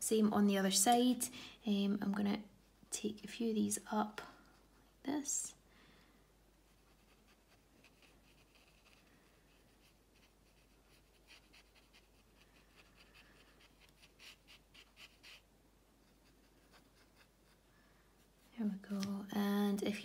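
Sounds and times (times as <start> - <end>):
paintbrush strokes on paper: 6.6 - 18.8.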